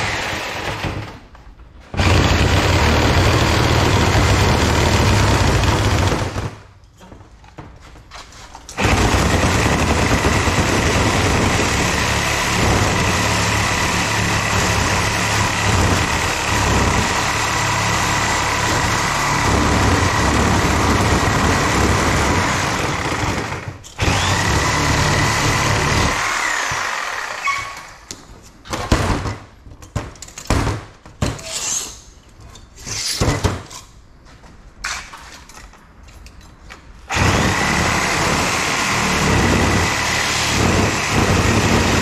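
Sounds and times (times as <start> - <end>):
power saw cutting metal: 8.8 - 27.9, 37.1 - 42.0.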